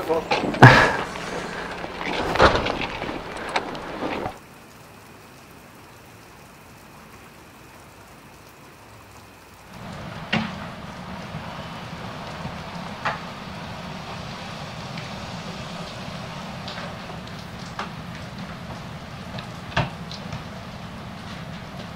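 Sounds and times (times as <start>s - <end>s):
knocks and clatter: 0.0s - 4.4s, 9.8s - 21.9s
rain falling on wet pavement: 0.0s - 21.9s.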